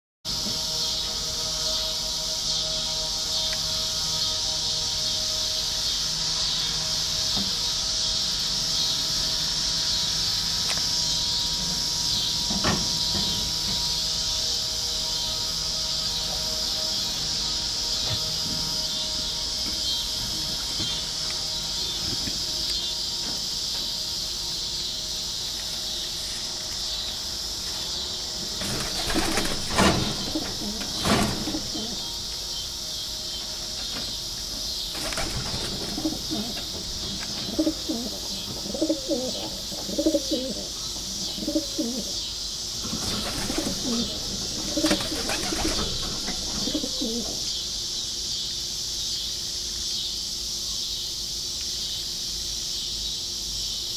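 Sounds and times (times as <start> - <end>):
high insect-like chirring: 0.3 - 53.9
pigeons cooing: 28.5 - 32.3, 34.7 - 47.6
wings flapping: 28.6 - 32.0, 34.9 - 36.6, 42.9 - 47.2.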